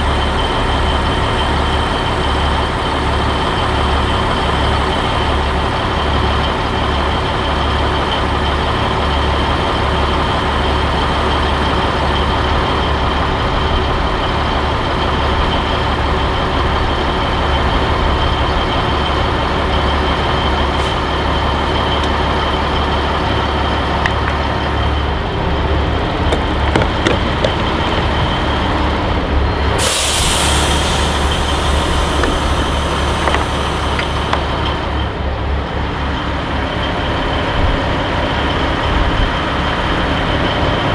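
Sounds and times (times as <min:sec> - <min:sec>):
diesel truck engine idling: 0:00.0 - 0:40.9
high engine whine: 0:00.0 - 0:40.9
air brake hiss: 0:29.8 - 0:34.0.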